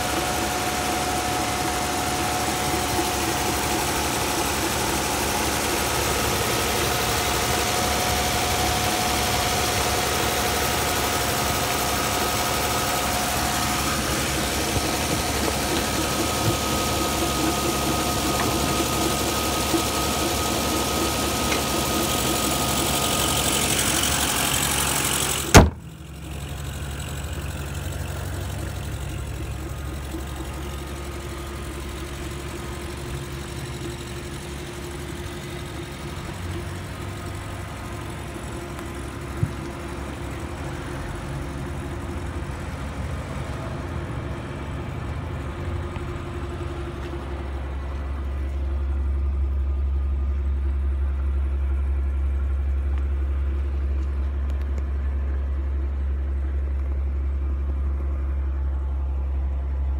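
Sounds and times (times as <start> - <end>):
car engine idling: 0.0 - 59.9
door slam: 25.5 - 25.9.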